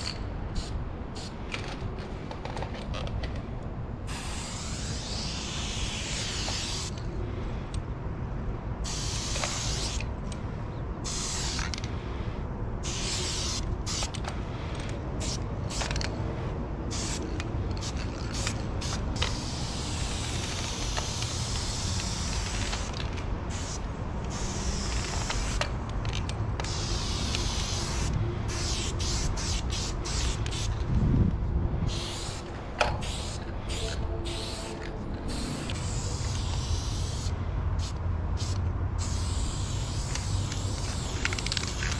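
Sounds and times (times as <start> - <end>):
spray paint can hissing: 0.0 - 1.4, 4.1 - 7.0, 8.8 - 10.1, 11.0 - 11.9, 12.8 - 14.2, 14.8 - 16.1, 16.9 - 30.7, 31.9 - 41.9.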